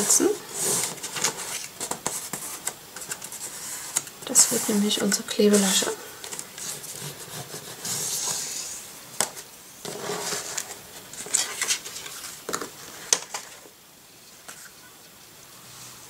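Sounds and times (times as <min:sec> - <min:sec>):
cardstock rubbing on plastic board: 0:06.6 - 0:08.8.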